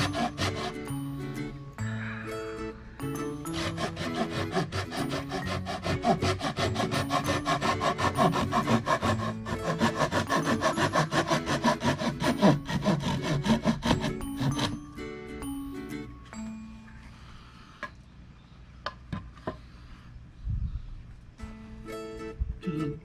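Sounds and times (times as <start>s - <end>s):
hand saw cutting wood: 0.0s - 1.2s, 3.2s - 14.9s.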